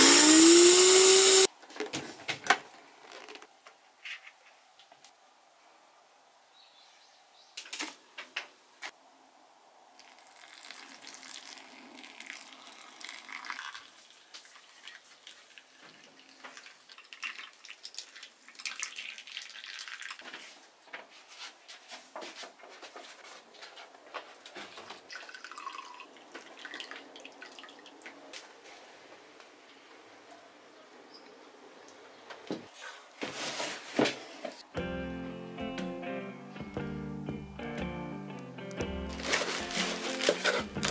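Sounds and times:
coffee poured into mug: 0:10.0 - 0:20.2, 0:25.1 - 0:27.7
coffee dripping through filter: 0:10.0 - 0:20.4, 0:25.1 - 0:28.1.

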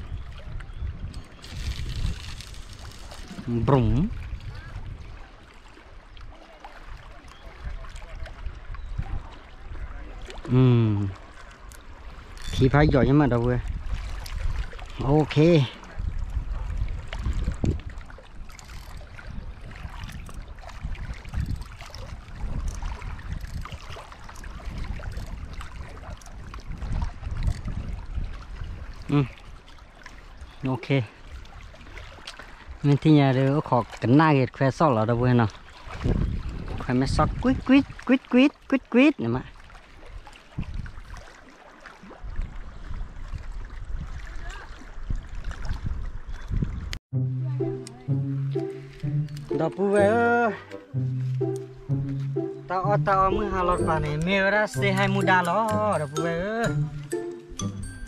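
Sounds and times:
wind rumbling on microphone: 0:00.0 - 0:30.6, 0:35.1 - 0:38.1, 0:39.9 - 0:41.2, 0:42.0 - 0:48.2
waves lapping against rocks: 0:00.0 - 0:47.0.

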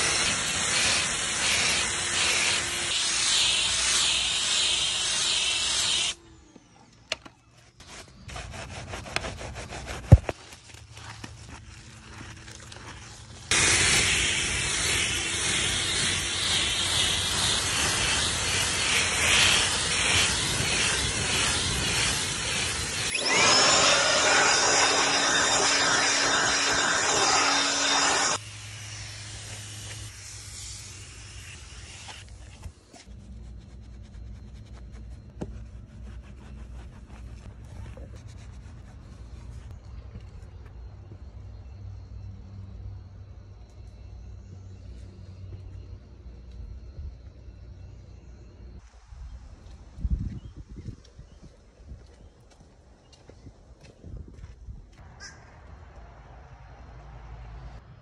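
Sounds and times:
pressure washer spraying water: 0:00.0 - 0:06.2, 0:13.5 - 0:32.2.

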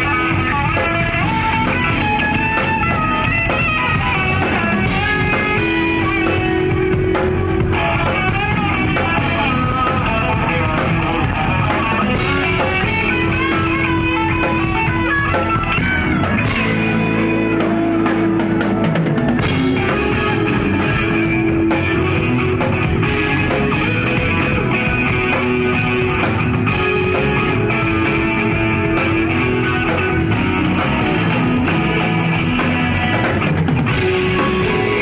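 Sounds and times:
drum kit: 0:00.0 - 0:35.0
electric guitar: 0:00.0 - 0:35.0.

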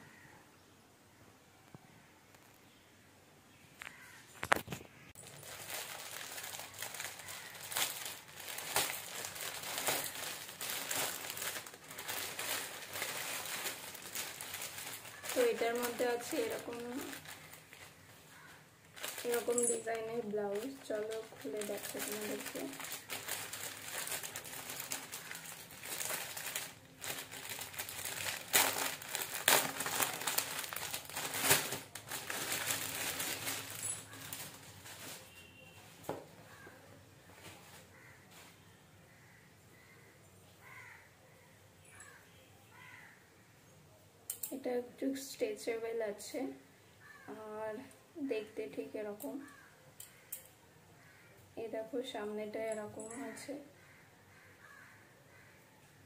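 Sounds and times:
plastic bag crinkling: 0:04.5 - 0:35.6.

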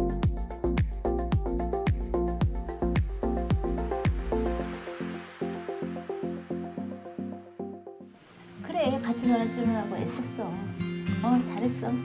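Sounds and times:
electronic pop music: 0:00.0 - 0:08.0.

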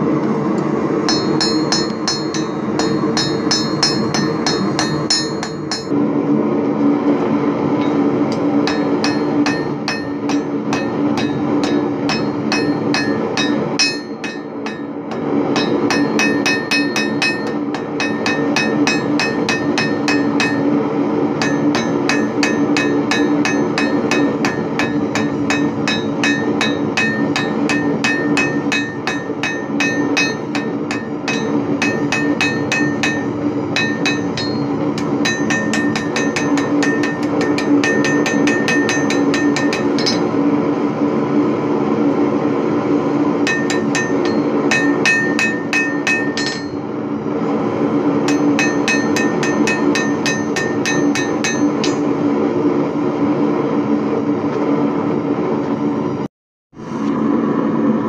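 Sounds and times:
steady hum: 0:00.0 - 0:58.0
hammer striking steel on anvil: 0:01.0 - 0:06.0, 0:07.8 - 0:20.8, 0:21.4 - 0:40.4, 0:43.4 - 0:46.8, 0:48.2 - 0:52.1.

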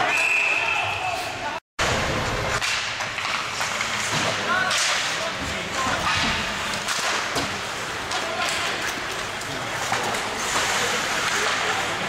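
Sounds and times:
hockey sticks cracking: 0:02.5 - 0:12.0
skates scraping ice: 0:02.5 - 0:12.0.

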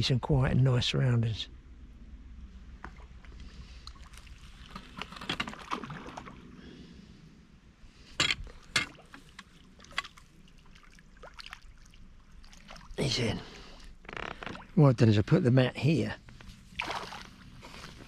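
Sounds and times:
fish splashing at the surface: 0:04.0 - 0:06.5, 0:08.6 - 0:13.0, 0:16.8 - 0:17.4.

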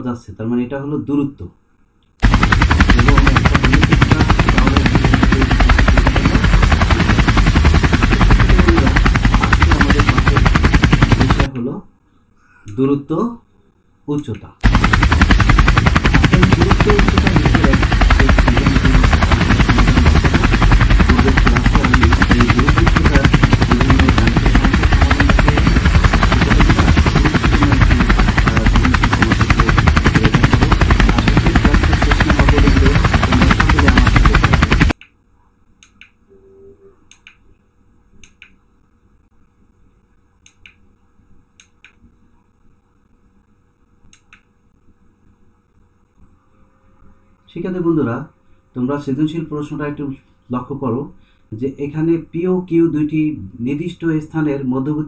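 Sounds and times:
helicopter rotor chopping: 0:02.2 - 0:11.5, 0:14.6 - 0:35.0.

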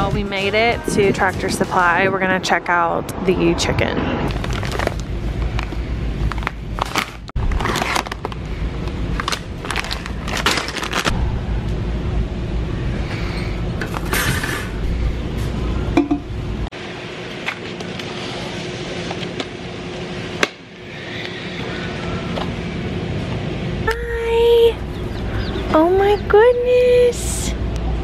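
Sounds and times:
steady low rumble: 0:00.0 - 0:17.4, 0:18.1 - 0:28.0
plastic bags crinkling: 0:04.3 - 0:11.1.

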